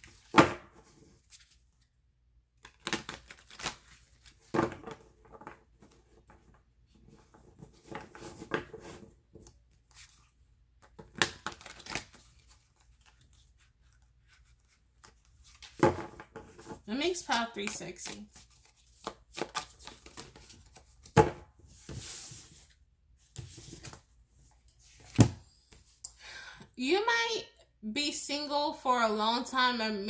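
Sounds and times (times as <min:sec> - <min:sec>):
cards shuffling: 0:02.6 - 0:04.5, 0:09.9 - 0:15.8, 0:16.5 - 0:21.2.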